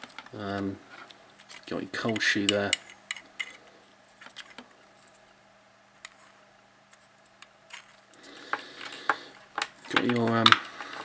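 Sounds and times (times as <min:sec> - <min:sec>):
faint steady hum: 0:00.0 - 0:11.0
clicks and taps on hard plastic: 0:08.5 - 0:10.6.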